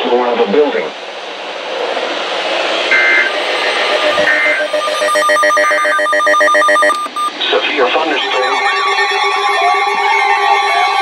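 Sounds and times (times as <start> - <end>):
rapidly pulsing buzzy tone: 2.9 - 7.3
digital data tone bursts: 2.9 - 7.4
radio static hiss: 2.9 - 8.5.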